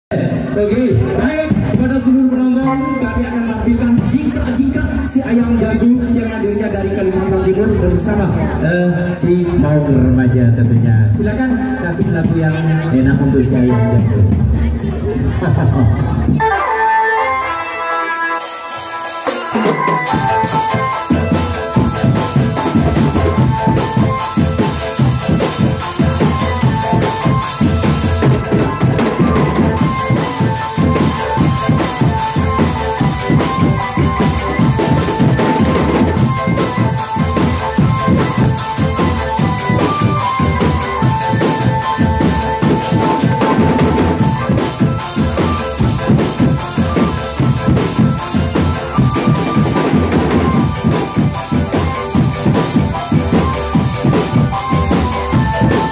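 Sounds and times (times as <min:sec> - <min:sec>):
drumband music: 0:00.1 - 0:55.9.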